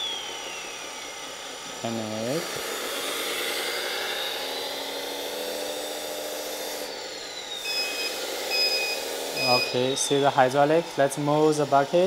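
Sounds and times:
high whine falling in pitch: 0:00.0 - 0:02.5, 0:07.3 - 0:12.0
model loader motor whirring: 0:00.0 - 0:12.0.

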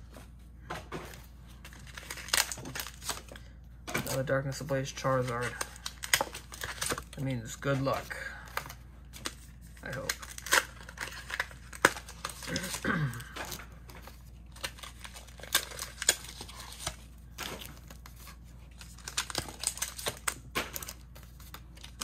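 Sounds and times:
foil wrappers crinkling: 0:01.5 - 0:22.0.

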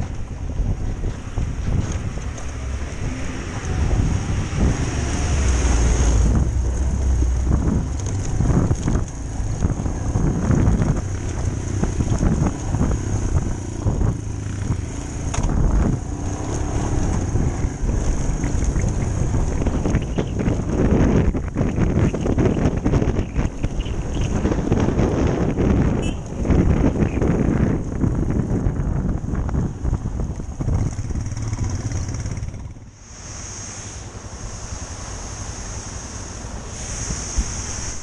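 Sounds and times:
motorcycle engine: 0:00.0 - 0:33.0
wind rumble on microphone: 0:00.0 - 0:38.0.

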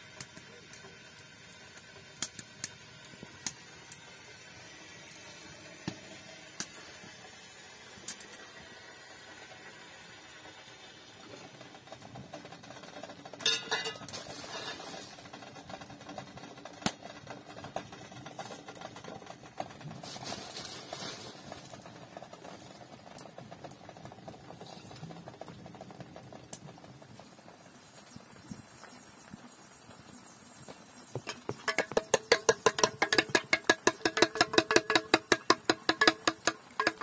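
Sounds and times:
metal kettles clinking: 0:13.4 - 0:14.8, 0:31.3 - 0:37.0.

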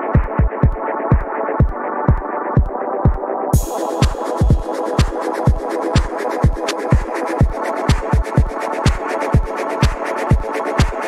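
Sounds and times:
electronic dance music: 0:00.0 - 0:11.0
deep kick drum: 0:00.2 - 0:04.7, 0:06.4 - 0:10.9
ticking hi-hats: 0:03.6 - 0:11.0.

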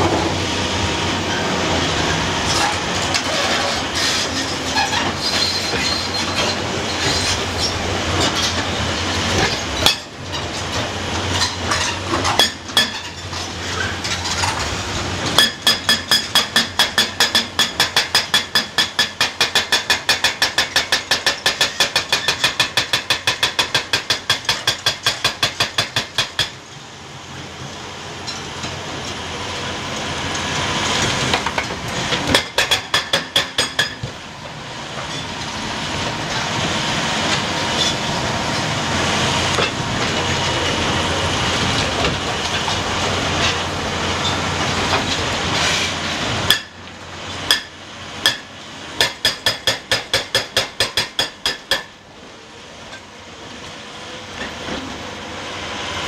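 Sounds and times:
hydraulic hammer pounding rock: 0:15.3 - 0:26.6, 0:31.0 - 0:34.2, 0:46.4 - 0:46.8, 0:47.4 - 0:52.0.

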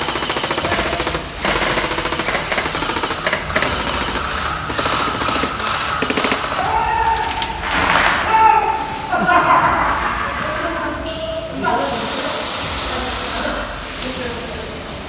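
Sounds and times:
airsoft rifles firing full auto: 0:00.0 - 0:08.4.

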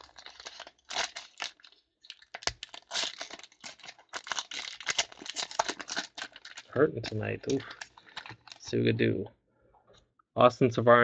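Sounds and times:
foil wrapper tearing and crinkling: 0:00.0 - 0:08.7.

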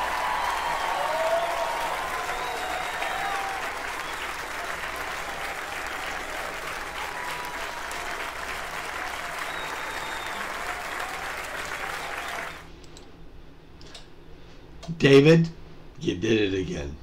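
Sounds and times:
audience applauding: 0:00.0 - 0:12.7.

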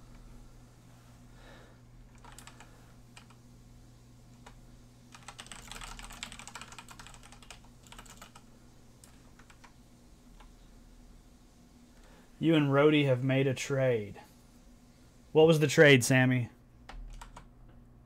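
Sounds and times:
faint electrical hum: 0:00.0 - 0:18.0
typing on computer keyboard: 0:02.1 - 0:03.4, 0:04.4 - 0:09.8, 0:16.9 - 0:17.5.

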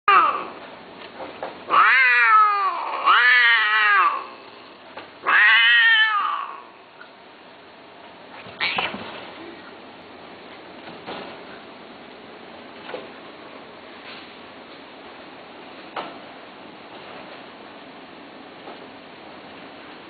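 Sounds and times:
cats caterwauling: 0:00.1 - 0:00.6, 0:01.7 - 0:04.6, 0:05.2 - 0:06.8, 0:08.5 - 0:09.0.

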